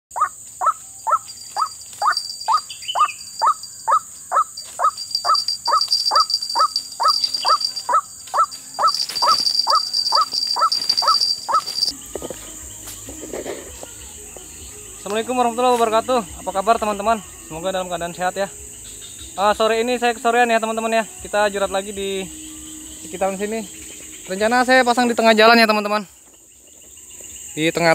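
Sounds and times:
waterhen calling: 0.1s - 12.0s
high insect buzz: 0.1s - 27.9s.

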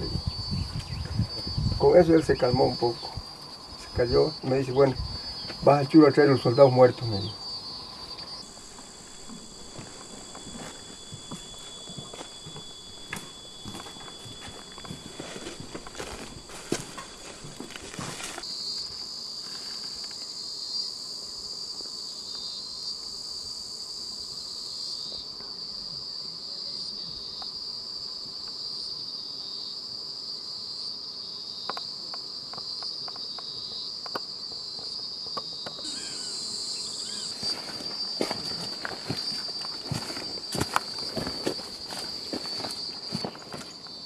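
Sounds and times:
insects chirring: 0.0s - 44.0s
footsteps on stones: 5.4s - 5.8s, 7.9s - 18.5s, 37.3s - 44.0s.

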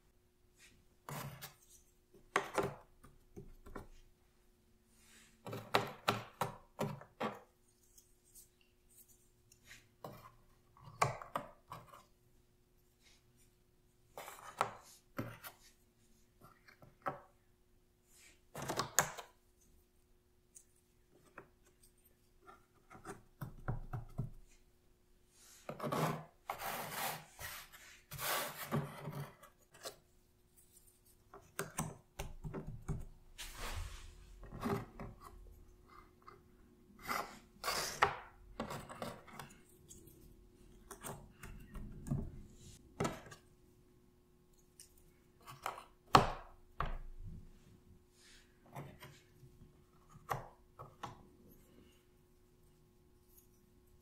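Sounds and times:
puzzle pieces sliding and rubbing: 33.4s - 34.4s.

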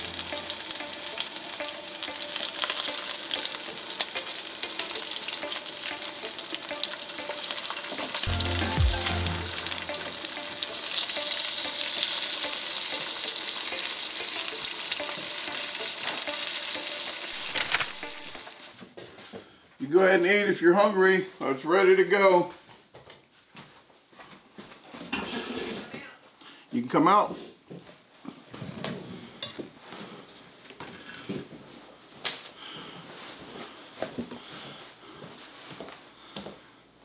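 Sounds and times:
fish sizzling in hot oil: 0.0s - 18.8s.

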